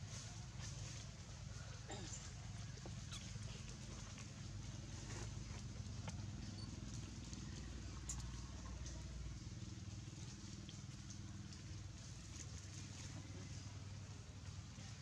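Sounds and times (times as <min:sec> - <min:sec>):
engine idling hum: 0:00.0 - 0:15.0.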